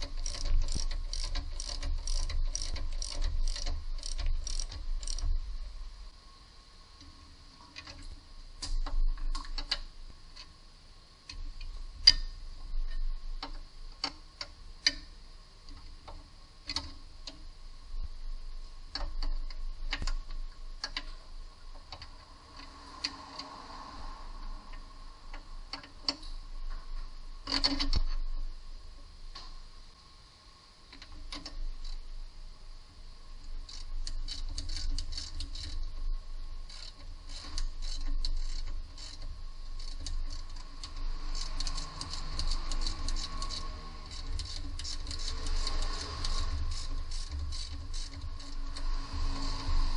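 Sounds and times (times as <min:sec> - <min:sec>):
ratchet wrench clicking: 0:00.0 - 0:05.3, 0:33.5 - 0:35.9, 0:36.6 - 0:49.9.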